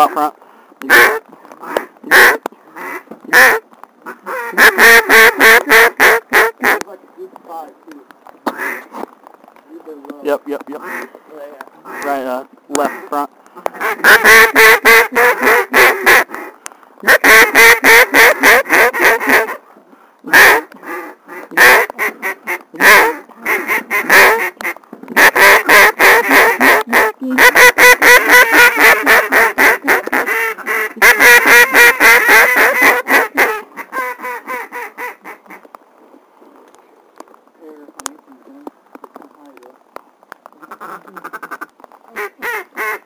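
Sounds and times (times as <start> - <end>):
duck call quacks: 0.9 - 6.8, 8.5 - 8.9, 10.8 - 11.1, 12.8 - 19.6, 20.3 - 35.6, 40.6 - 43.0.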